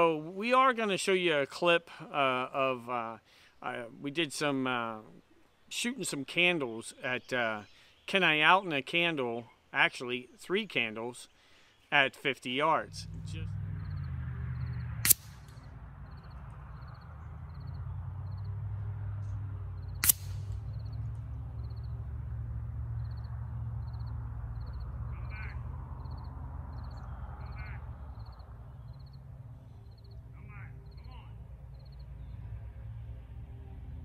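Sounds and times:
low steady rumble: 12.8 - 34.0
air rifle shots cracking: 15.0 - 15.6, 20.0 - 20.7
bird calling: 23.0 - 32.4
faint regular chirping: 23.0 - 32.4.

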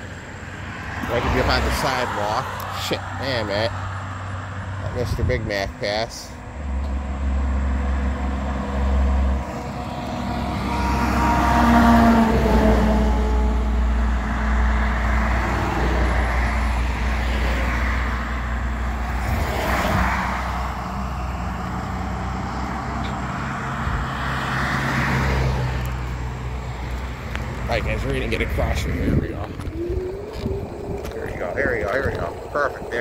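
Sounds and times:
low traffic rumble: 0.0 - 33.0
vehicles passing by: 0.0 - 33.0
tyre noise: 26.6 - 33.0.

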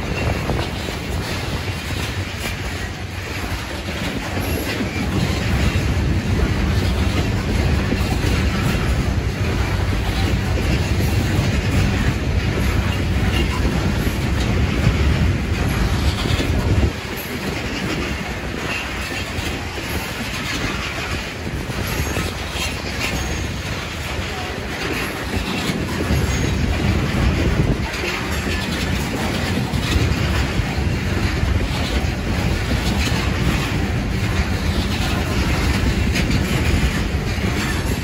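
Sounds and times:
heavy low rumble: 0.0 - 17.0
train wheels clicking over rail joints: 0.0 - 38.0.

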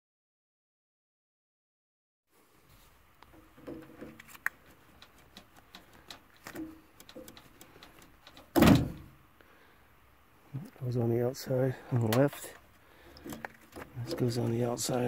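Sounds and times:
pliers clicking on connectors: 4.2 - 8.5.

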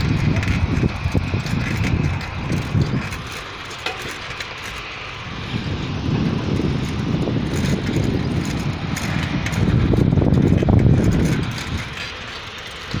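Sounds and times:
wind buffeting microphone: 0.0 - 13.0.

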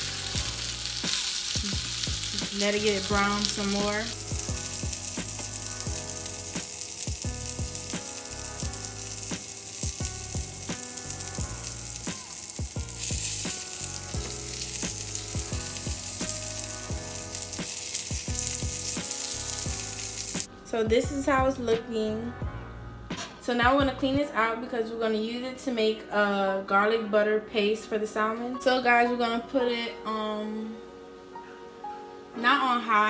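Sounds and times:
fish sizzling in oil: 0.0 - 20.5
background music: 0.0 - 33.0.

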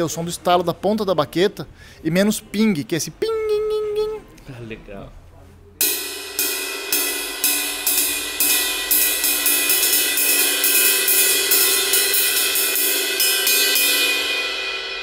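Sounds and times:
drumstick clicking on cymbal: 5.8 - 14.7
ride cymbal ringing: 5.8 - 15.0.

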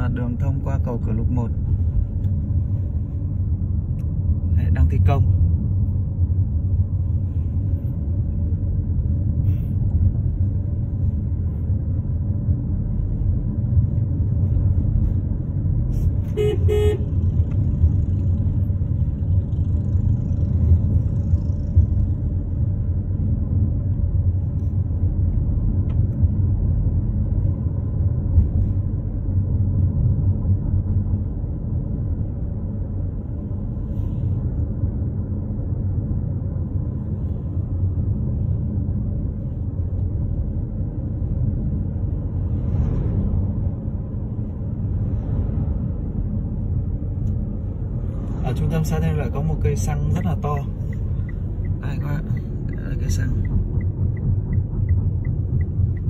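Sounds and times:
road and engine rumble: 0.0 - 56.0
car horn toot: 16.3 - 17.2.

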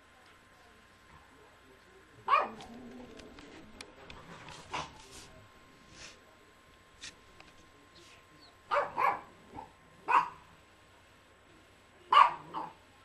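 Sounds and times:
small dog barking: 2.2 - 2.7, 8.7 - 10.4, 12.1 - 12.8.

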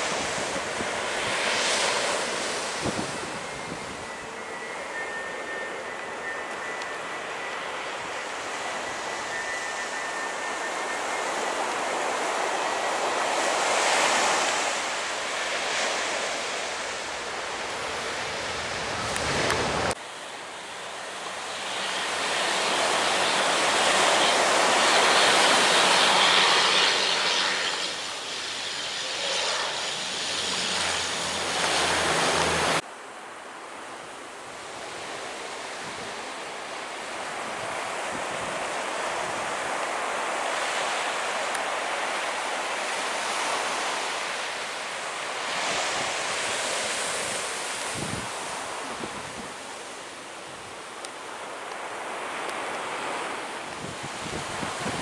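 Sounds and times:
jet airliner noise: 0.0 - 32.8
turboprop propeller hum: 0.0 - 32.8.

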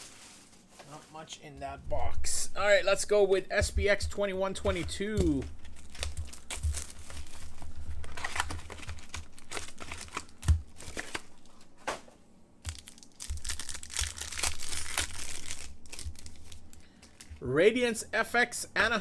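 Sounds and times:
card pack wrapper tearing: 5.6 - 11.4, 12.6 - 17.3.

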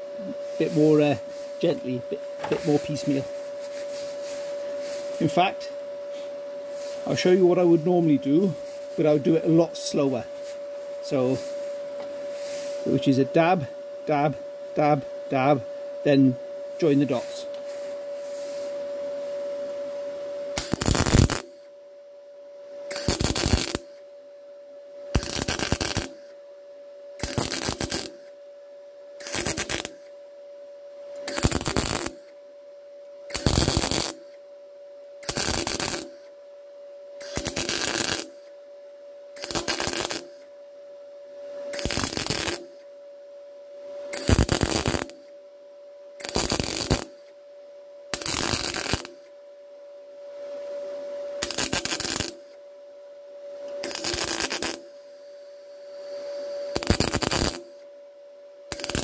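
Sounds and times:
steady hum: 0.0 - 59.0
welder tack-weld bursts: 20.6 - 21.6, 22.9 - 24.0, 25.1 - 26.3, 27.2 - 28.3, 29.2 - 30.1, 31.3 - 32.3, 33.3 - 34.4, 35.2 - 36.2, 37.2 - 38.5, 39.4 - 40.5, 41.7 - 42.9, 44.1 - 45.3, 46.2 - 47.3, 48.1 - 49.2, 51.4 - 52.5, 53.8 - 54.9, 56.7 - 57.8, 58.7 - 59.0.

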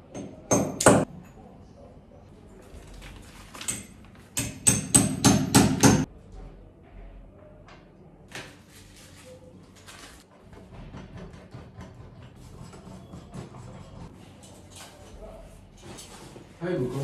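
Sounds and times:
hammer striking hard surface: 0.0 - 1.1, 3.8 - 6.1.

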